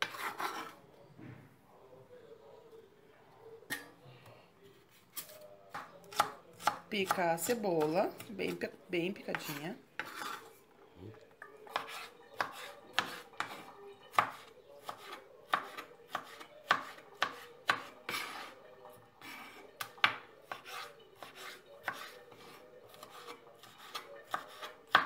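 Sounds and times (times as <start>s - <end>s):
knife tapping cutting board: 11.7s - 18.4s, 19.8s - 25.0s.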